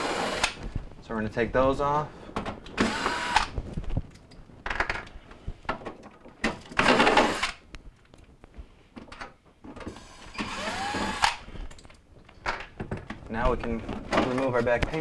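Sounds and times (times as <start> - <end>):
cordless drill running: 0.0 - 0.6, 2.8 - 3.6, 7.0 - 7.6, 9.9 - 11.4.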